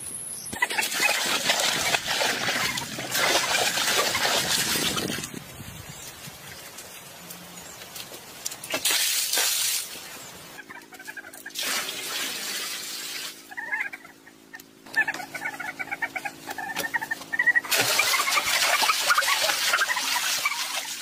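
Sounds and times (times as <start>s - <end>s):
water splashing into a pool: 0.6s - 5.4s, 8.7s - 10.1s, 11.4s - 13.5s, 17.6s - 21.0s
small birds chirping: 13.5s - 17.7s.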